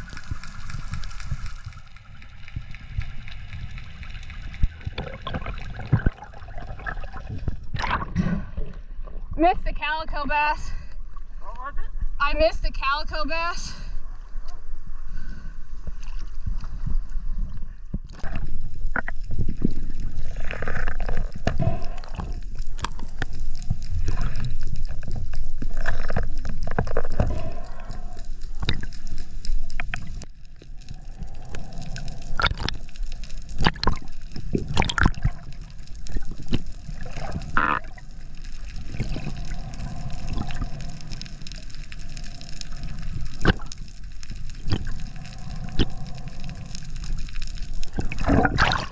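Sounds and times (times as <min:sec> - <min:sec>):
seawater sloshing and gurgling: 0:00.0 - 0:09.4, 0:18.0 - 0:48.9
muffled underwater rumble: 0:00.0 - 0:09.5, 0:13.8 - 0:48.9
underwater clicks and knocks: 0:04.4 - 0:08.8, 0:43.3 - 0:43.9.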